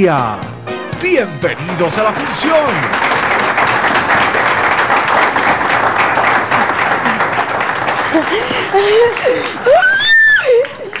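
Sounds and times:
audience applauding: 1.4s - 11.0s
people laughing: 6.5s - 11.0s.

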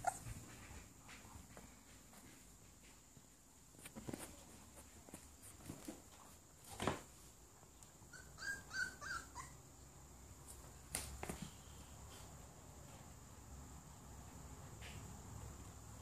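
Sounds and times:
puppy whimpering: 0.0s - 0.4s, 8.1s - 9.6s.

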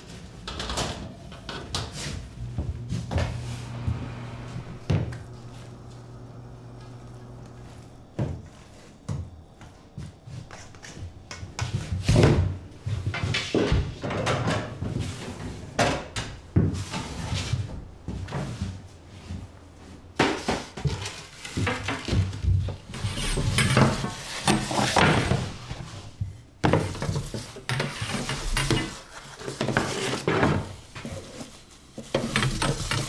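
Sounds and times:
steady low hum: 0.0s - 20.2s
kitchen knocks and clatter: 32.0s - 33.0s.

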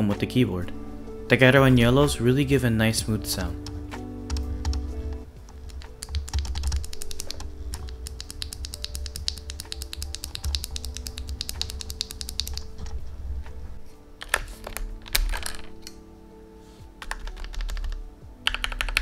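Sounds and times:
background music: 0.0s - 19.0s
fast keyboard typing: 4.3s - 13.0s, 14.2s - 15.7s, 17.0s - 19.0s.

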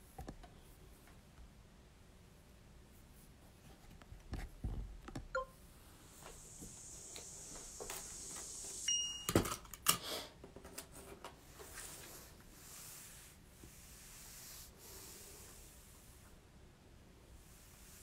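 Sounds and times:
brief high tone: 8.9s - 9.3s.

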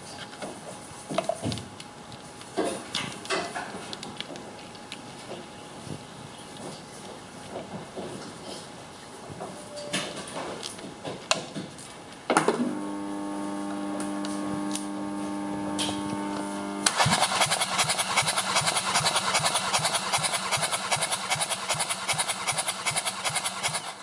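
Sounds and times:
electric motor whine: 12.5s - 24.0s
engine cranking over by starter: 16.8s - 24.0s.

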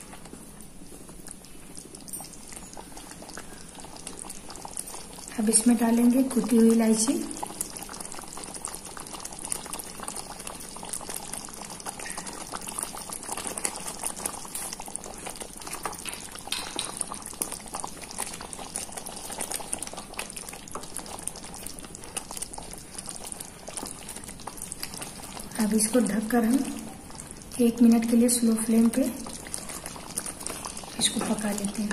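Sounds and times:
thick gravy bubbling and popping: 0.0s - 31.9s
wooden spatula stirring: 9.5s - 31.9s.

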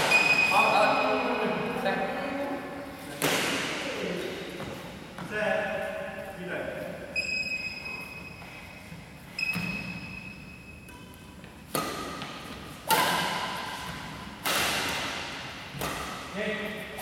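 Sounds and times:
racket striking shuttlecock: 0.0s - 0.5s, 3.2s - 3.8s, 10.8s - 16.3s.

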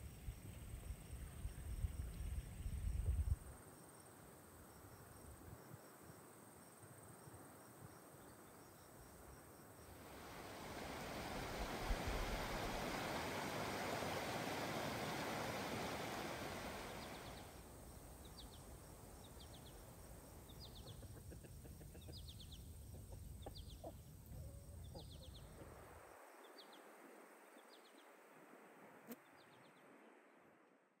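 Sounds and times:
river rushing: 10.0s - 17.6s
chickens clucking: 20.6s - 25.3s.

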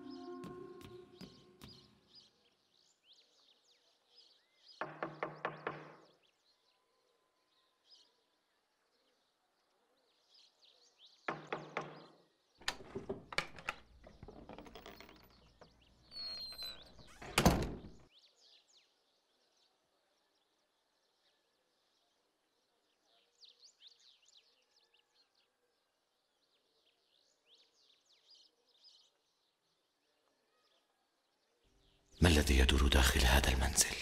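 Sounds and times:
door squeaking open: 0.0s - 1.9s, 12.6s - 18.0s
birds chirping: 0.0s - 2.7s, 11.6s - 18.0s, 31.8s - 34.0s
knocking on wooden door: 4.8s - 6.1s, 11.3s - 15.3s
door shutting thunk: 12.6s - 15.4s, 16.1s - 18.0s.

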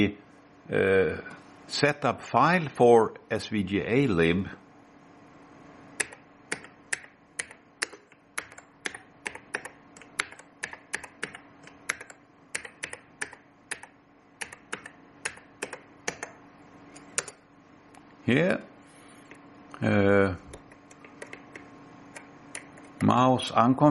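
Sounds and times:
computer keyboard typing: 6.0s - 16.4s, 17.0s - 17.4s, 20.5s - 23.1s.

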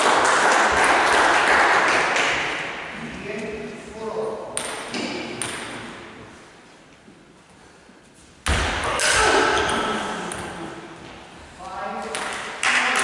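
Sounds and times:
loud thud: 8.4s - 9.7s.

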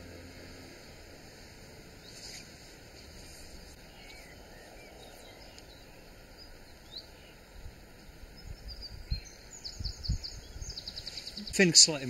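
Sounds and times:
steady hiss: 0.0s - 12.0s
faint bird chirps: 2.0s - 11.8s
wind gusts buffeting microphone: 2.8s - 12.0s.

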